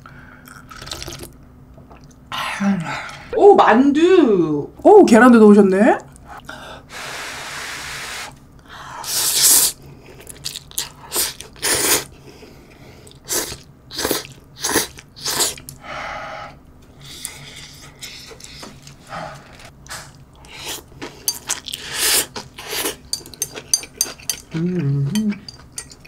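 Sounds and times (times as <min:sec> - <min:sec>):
slurping and chewing noodles: 0:09.1 - 0:12.2, 0:13.0 - 0:15.8, 0:17.0 - 0:26.0.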